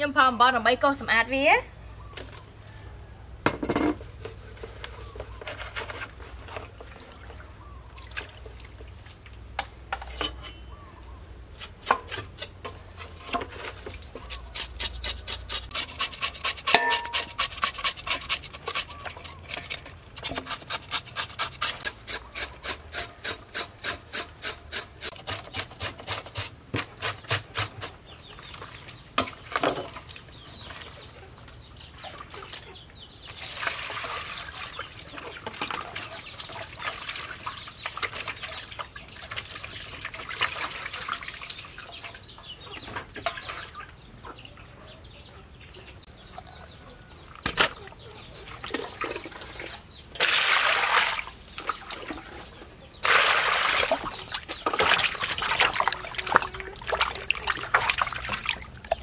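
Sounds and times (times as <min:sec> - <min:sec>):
rasping scraping strokes: 0:11.6 - 0:27.9.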